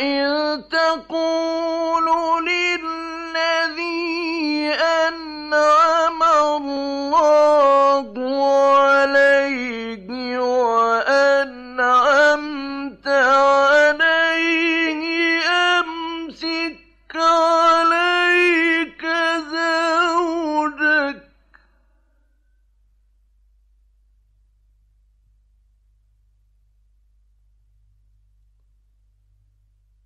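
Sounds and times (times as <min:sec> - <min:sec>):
man chanting melodically: 0:00.0 - 0:21.4
breaths: 0:21.2 - 0:22.3.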